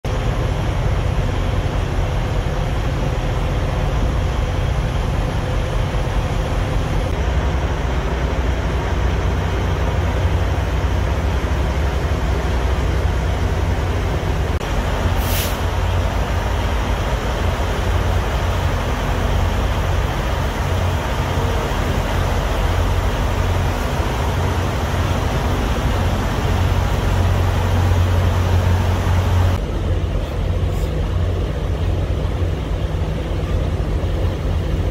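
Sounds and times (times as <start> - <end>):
diesel trucks idling: 0.0 - 34.9
high hiss: 14.7 - 20.8.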